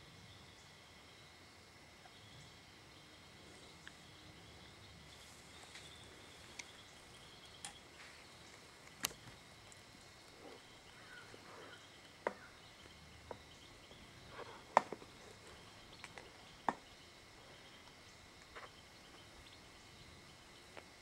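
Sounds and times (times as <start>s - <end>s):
faint insect chirring: 0.0s - 21.0s
sharp clicks and snaps: 8.8s - 9.8s.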